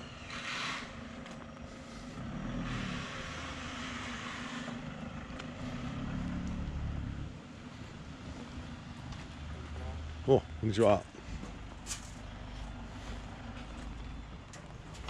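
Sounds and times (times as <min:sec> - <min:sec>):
road hiss: 0:00.0 - 0:09.7
car engine rumbling: 0:00.0 - 0:15.0.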